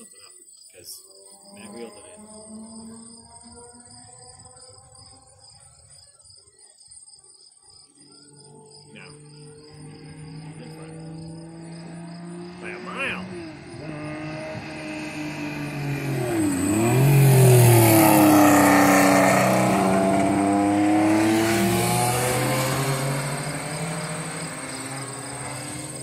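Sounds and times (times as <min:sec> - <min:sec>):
race car engines passing: 0:00.0 - 0:06.0, 0:07.8 - 0:26.0.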